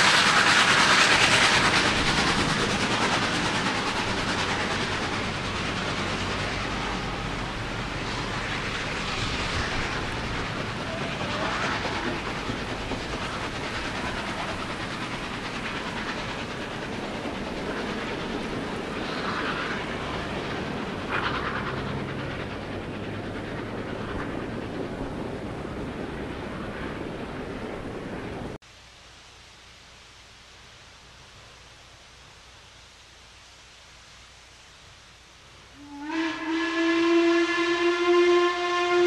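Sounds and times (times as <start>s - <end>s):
train cars rolling on rails: 0.0s - 28.6s.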